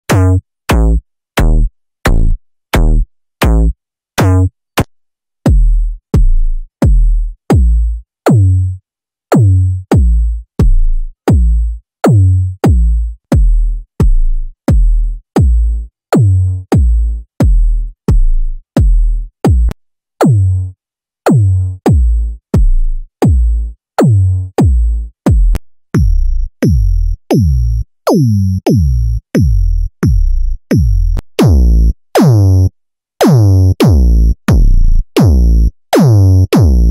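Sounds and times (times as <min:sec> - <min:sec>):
synthesized kick drum hits: 0:05.5 - 0:07.9, 0:09.3 - 0:20.6, 0:21.3 - 0:32.6, 0:33.2 - 0:36.9.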